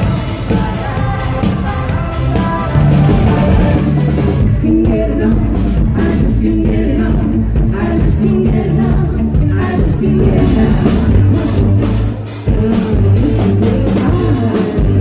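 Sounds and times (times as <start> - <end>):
live pop-rock band playing: 0.0 - 15.0
woman singing lead vocals: 0.0 - 15.0.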